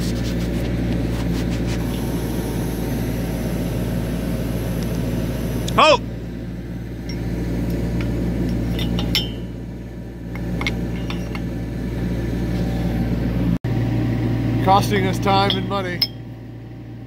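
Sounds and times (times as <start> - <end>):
diesel engine idling: 1.7 - 17.0
metal pins clinking: 7.9 - 9.6, 10.3 - 11.5, 15.4 - 16.3.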